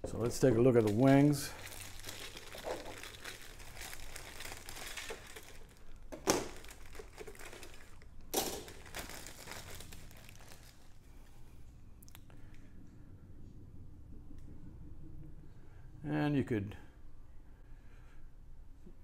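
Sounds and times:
plastic bag crinkling: 0:00.2 - 0:11.0.

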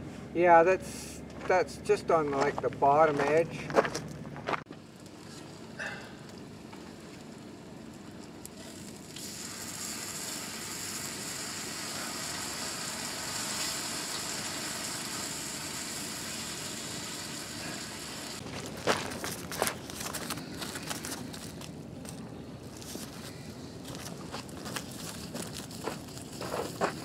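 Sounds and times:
meat sizzling on griddle: 0:08.5 - 0:18.4.

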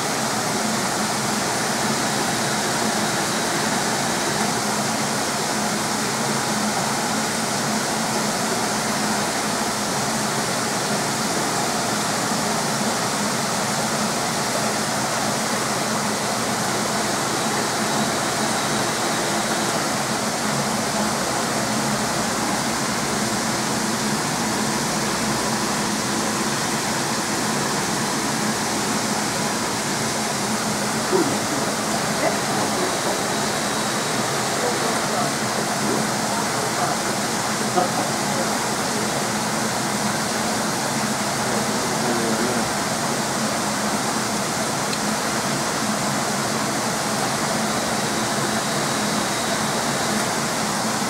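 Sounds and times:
running water and aeration: 0:00.0 - 0:51.0.

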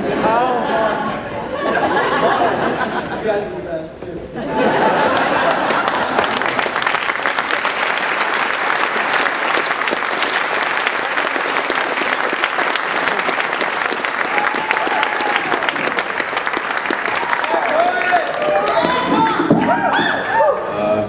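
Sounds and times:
crowd applauding: 0:04.6 - 0:20.8.

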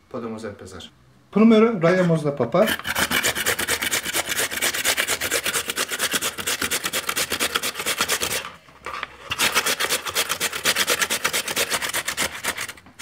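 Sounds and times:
potato grated on metal grater: 0:02.6 - 0:08.6, 0:09.2 - 0:13.0.

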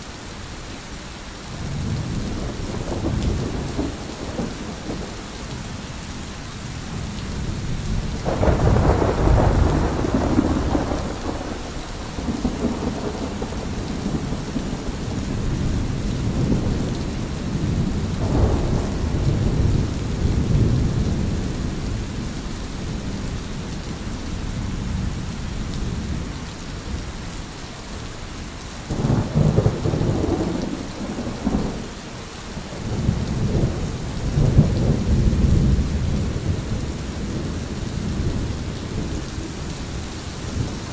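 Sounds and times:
rain hissing: 0:00.0 - 0:40.9
thunder rolling: 0:08.2 - 0:15.6, 0:17.6 - 0:21.4, 0:28.9 - 0:31.9.

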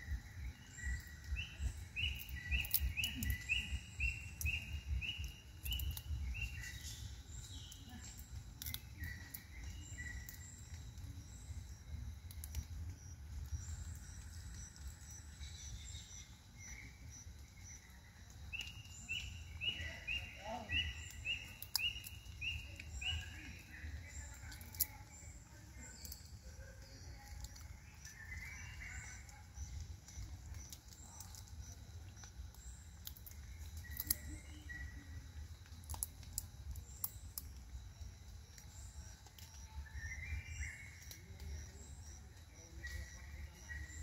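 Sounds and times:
birds chirping: 0:00.0 - 0:44.0
steady low rumble: 0:00.0 - 0:44.0
sharp clicks: 0:35.6 - 0:37.6.

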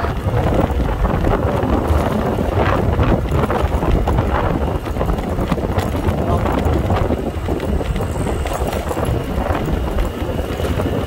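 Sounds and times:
motor scooter running: 0:00.0 - 0:11.0
wind buffeting microphone: 0:00.0 - 0:11.0.

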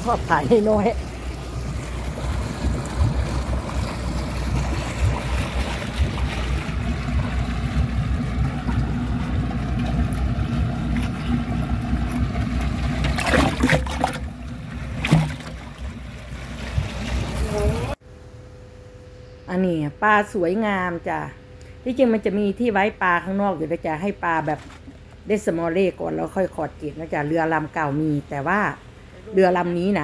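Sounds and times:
water noise: 0:00.0 - 0:18.0
motorboat engine running: 0:00.0 - 0:19.4
wind: 0:00.0 - 0:30.0.

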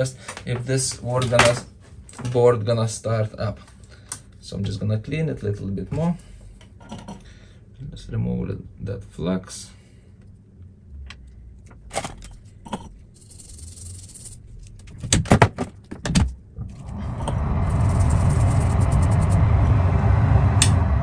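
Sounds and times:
steady rushing noise: 0:16.7 - 0:21.0.

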